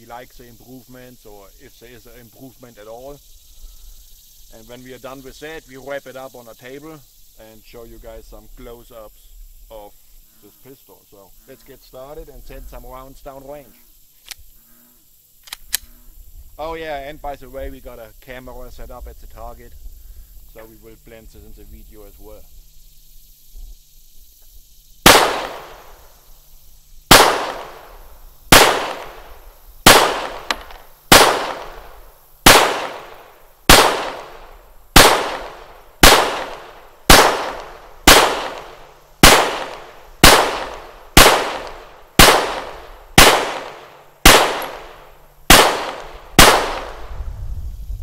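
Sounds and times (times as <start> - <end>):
pistol shots: 25.0 - 26.0, 27.1 - 47.1.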